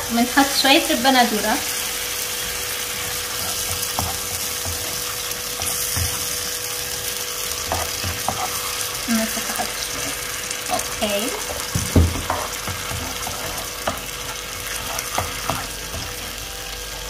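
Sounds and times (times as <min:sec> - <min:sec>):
tomatoes sizzling in a pan: 0:00.0 - 0:17.0
spatula scraping a pan: 0:02.4 - 0:06.6, 0:07.5 - 0:10.8, 0:11.4 - 0:16.4.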